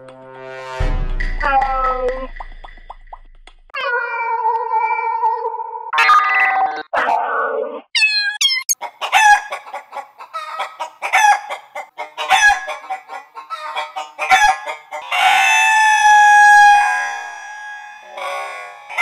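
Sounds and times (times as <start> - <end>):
distorted cat meow: 3.8 - 8.4
electronic chicken clucks: 8.4 - 19.0
rooster crow: 14.3 - 19.0.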